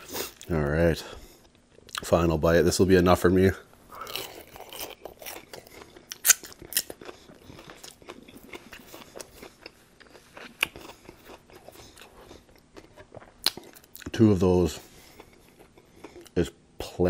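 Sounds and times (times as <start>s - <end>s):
chewing crispy fried chicken: 3.9s - 14.2s, 14.8s - 16.4s.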